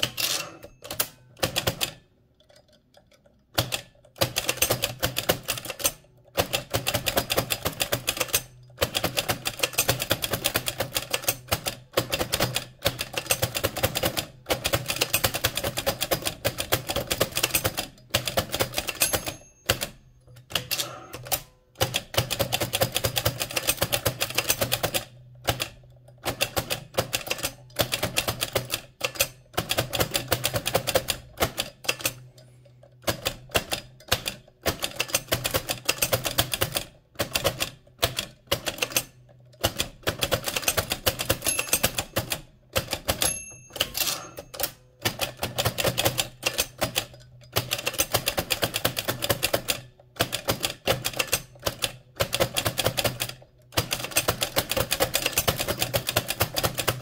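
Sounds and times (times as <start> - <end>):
typewriter bell ringing: 0.0 - 1.2, 18.7 - 21.4, 40.7 - 42.4, 43.0 - 44.9
typewriter keys clacking: 0.0 - 32.3, 33.0 - 57.0.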